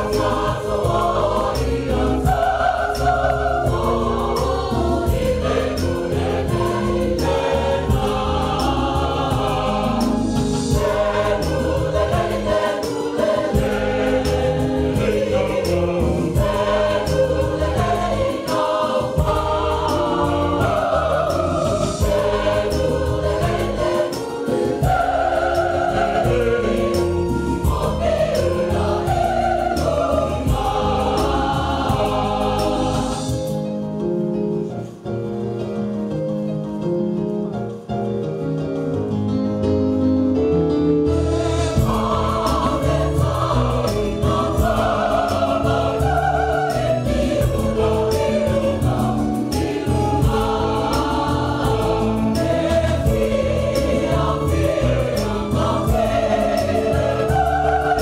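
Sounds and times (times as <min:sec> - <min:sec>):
choir singing a hymn: 0:00.0 - 0:34.6, 0:40.7 - 0:58.0.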